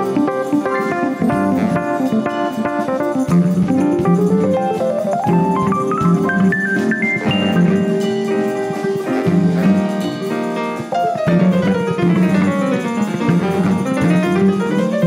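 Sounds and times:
big band playing jazz-funk: 0.0 - 15.0
sliding note: 3.9 - 11.9.

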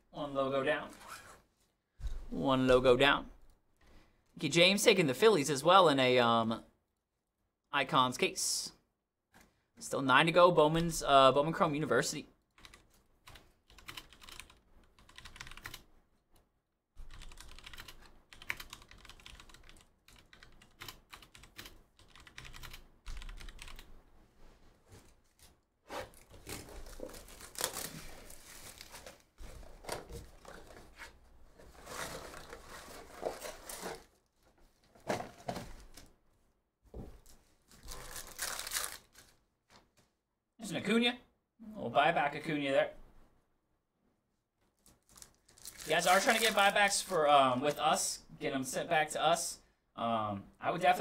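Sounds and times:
typing on keyboard: 12.6 - 15.9, 17.1 - 23.9
cardboard box rustling: 26.0 - 34.2
foil pack tearing: 45.0 - 46.7.

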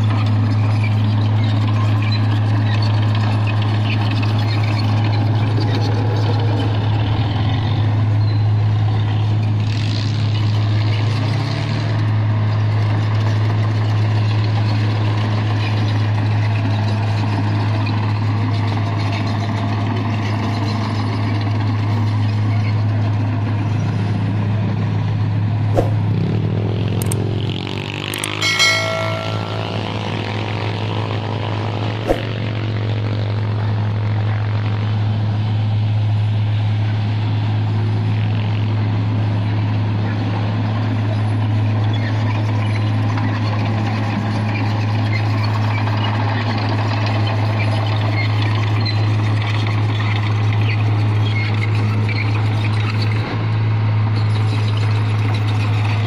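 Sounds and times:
diesel truck engine running: 0.0 - 56.0
sharp knocks: 25.7 - 26.0.

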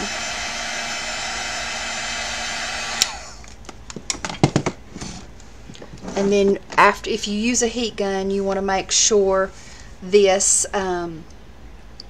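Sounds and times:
heat gun blowing: 0.0 - 3.6.

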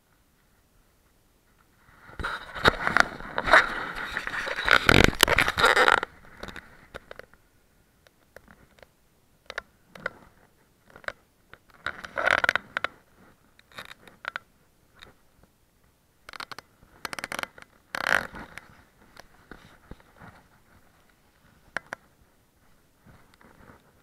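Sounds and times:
scraping and crunching: 2.2 - 7.2.

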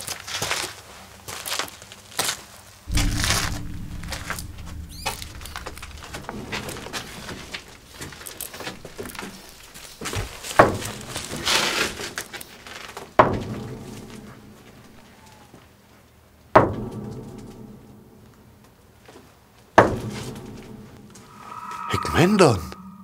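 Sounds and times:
heavy echoing thuds: 2.9 - 9.2
low rustling: 2.9 - 10.0.

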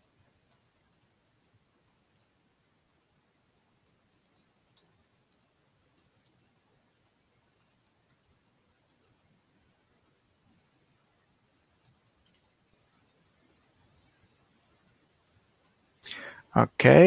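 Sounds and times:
typing on computer keyboard: 0.0 - 2.4, 3.6 - 6.6, 7.5 - 9.2, 11.1 - 16.3.

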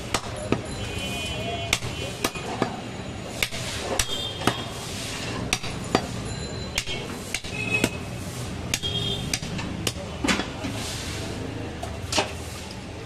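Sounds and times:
knife chopping meat on wooden block: 1.7 - 2.8, 8.7 - 10.5.

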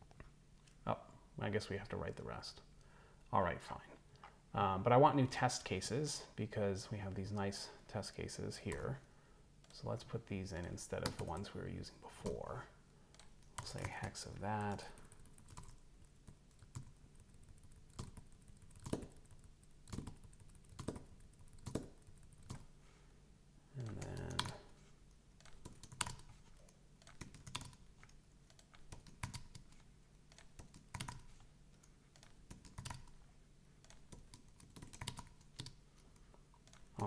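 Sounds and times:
keyboard typing clicks: 13.1 - 22.7, 23.8 - 33.2, 33.8 - 37.0
person humming: 23.7 - 24.6.

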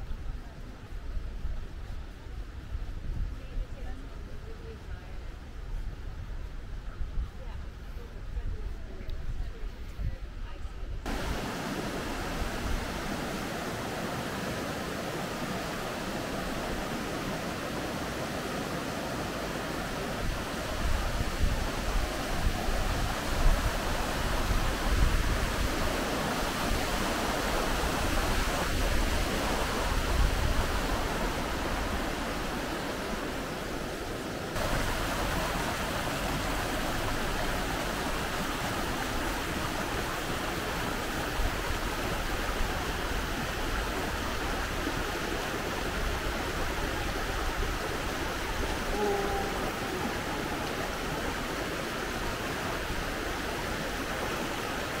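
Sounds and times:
river rushing: 11.1 - 55.0
stream splashing over rocks: 11.1 - 55.0.

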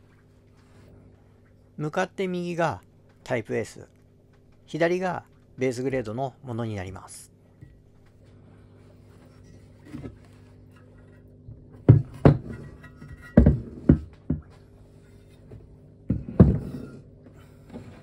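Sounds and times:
heavy metal parts knocking on workbench: 11.4 - 14.6, 15.3 - 17.0.

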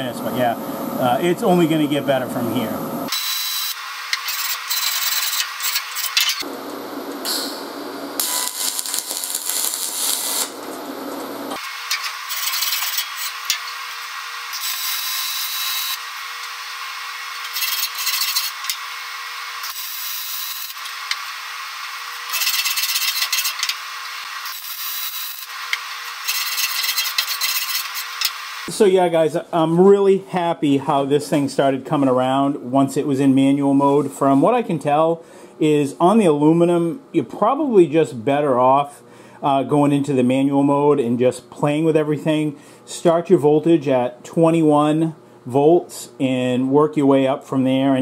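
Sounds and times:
wire brush scrubbing metal: 11.9 - 13.8, 17.4 - 18.8, 26.2 - 28.0.

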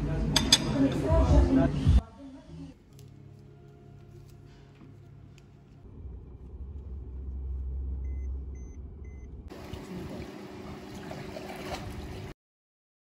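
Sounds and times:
low rumble: 4.9 - 9.5
short electronic beeps: 8.0 - 9.3
pool water trickling: 9.5 - 12.3.

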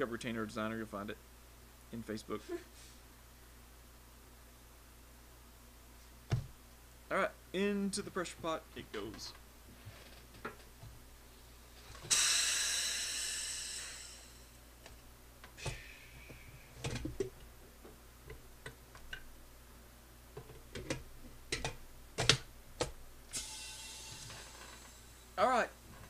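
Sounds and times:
compressed air hissing: 11.8 - 14.7, 15.6 - 16.9, 23.3 - 25.4.

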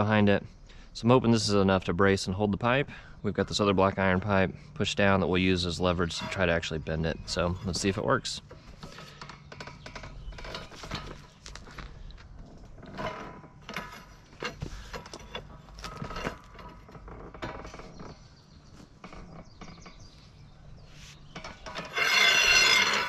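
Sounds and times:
metal clicks and scrapes: 21.3 - 23.0.

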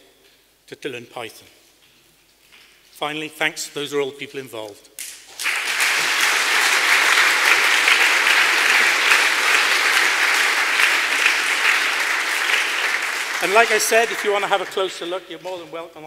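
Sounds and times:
audience applauding: 5.3 - 15.3.

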